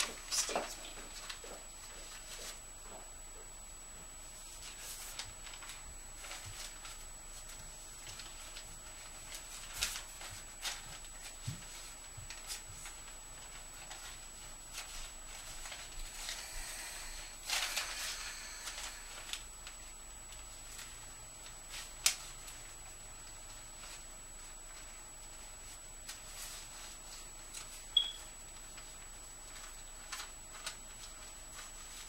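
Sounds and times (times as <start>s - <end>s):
paper rustling and crackling: 0.0s - 2.6s, 4.3s - 32.0s
faint high whine: 10.2s - 21.9s, 22.6s - 29.8s.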